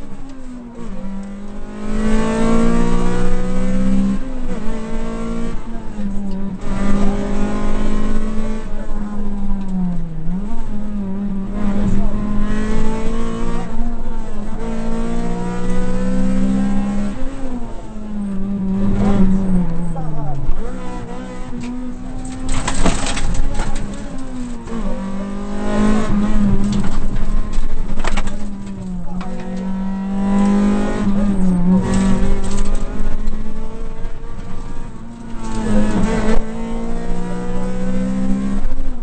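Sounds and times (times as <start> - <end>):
car engine at full throttle: 0.0 - 39.0.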